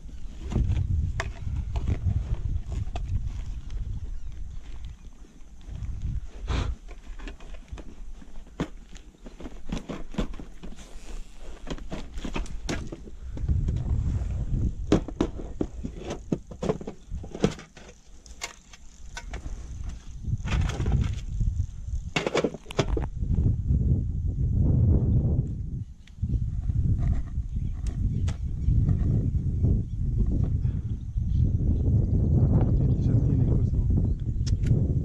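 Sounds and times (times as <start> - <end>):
clicks and knocks of gear: 6.8 - 13.9, 14.9 - 21.4.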